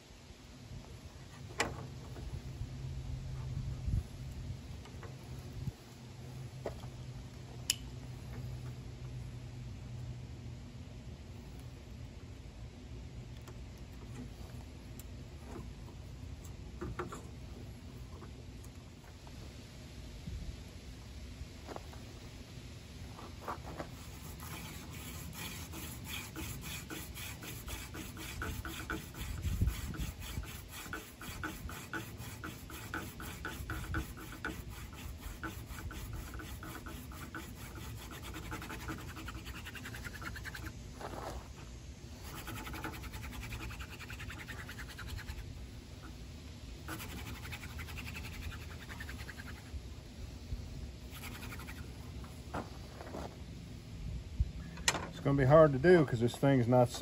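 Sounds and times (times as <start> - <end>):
wooden spindle scratching fireboard: 23.2 - 41.6, 42.2 - 46.2, 46.8 - 49.8, 51.1 - 53.3.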